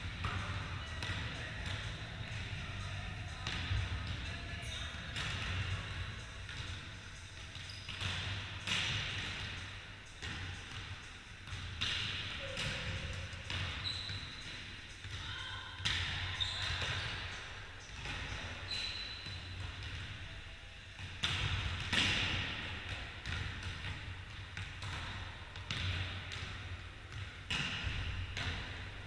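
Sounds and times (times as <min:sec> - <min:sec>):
high squeaks: 0:13.8 - 0:14.4.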